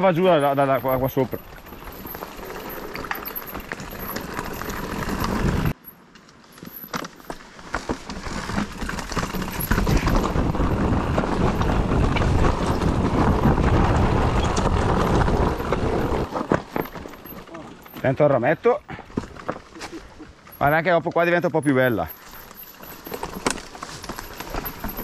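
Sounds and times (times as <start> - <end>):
tyres crunching over stones: 0.0 - 25.0
chain and frame knocking: 20.5 - 25.0.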